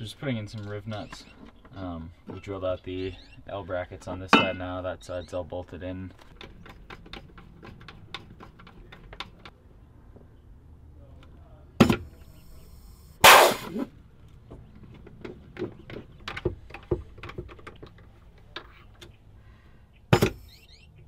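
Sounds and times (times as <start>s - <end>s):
harsh burst: 13.2s - 13.9s
sharp crack: 13.2s - 13.9s.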